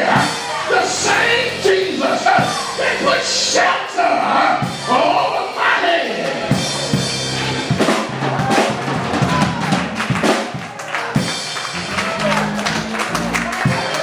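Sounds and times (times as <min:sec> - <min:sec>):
live band music: 0:00.0 - 0:14.0
drum kit hits: 0:06.4 - 0:14.0.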